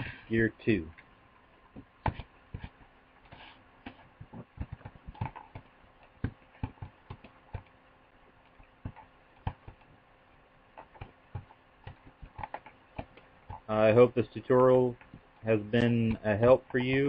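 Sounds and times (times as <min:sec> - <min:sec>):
mouse and keyboard clicking: 0:10.8 - 0:13.7.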